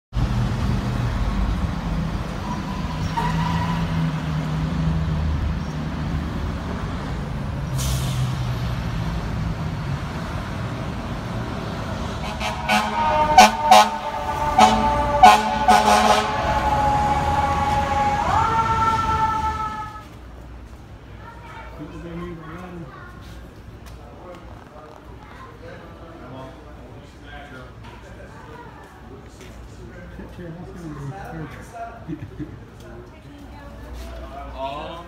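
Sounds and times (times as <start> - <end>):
diesel engine and traffic rumble: 0.1 - 35.0
air horn blasts: 12.2 - 20.0
siren rising: 12.3 - 20.0.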